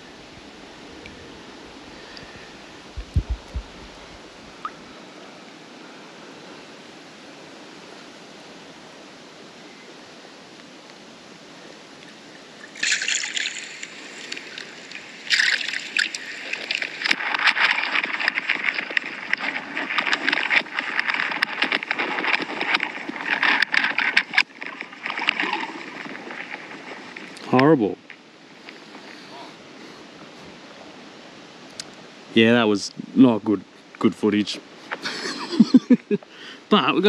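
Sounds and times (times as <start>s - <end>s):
steady hiss: 0.0s - 22.6s, 25.8s - 37.0s
water splashing and sloshing: 12.0s - 30.8s.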